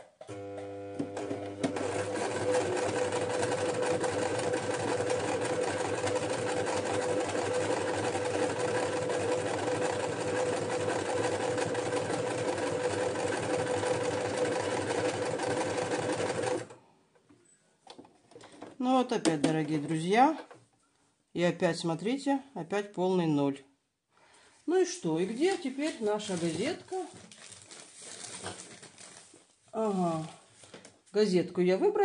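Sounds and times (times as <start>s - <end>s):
sewing machine running: 0.3s - 16.8s.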